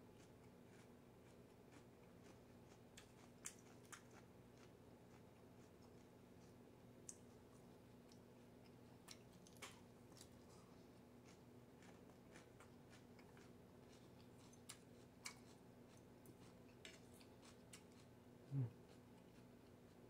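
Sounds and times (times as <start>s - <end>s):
low steady hum: 0.0s - 20.0s
person humming: 18.5s - 18.8s.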